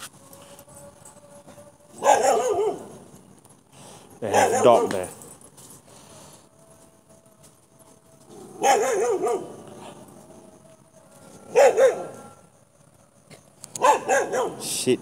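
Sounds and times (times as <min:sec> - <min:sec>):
dogs barking: 0:01.9 - 0:03.2, 0:04.2 - 0:05.2, 0:08.2 - 0:10.6, 0:11.4 - 0:12.4, 0:13.8 - 0:14.8.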